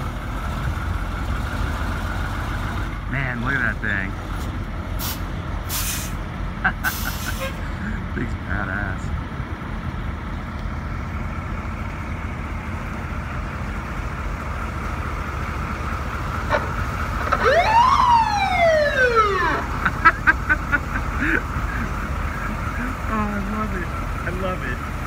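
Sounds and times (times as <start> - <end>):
diesel engine idling: 0.0 - 25.0
fire truck siren: 16.2 - 20.0.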